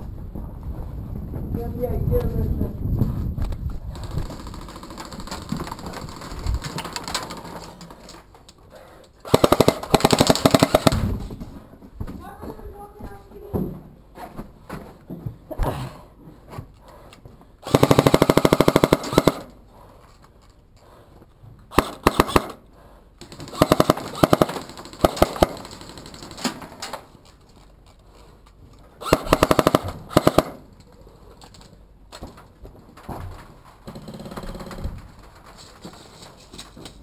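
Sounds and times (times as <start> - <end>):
airsoft guns firing bursts: 9.2 - 11.2, 17.6 - 19.5, 21.7 - 22.6, 23.2 - 26.6, 29.0 - 30.7.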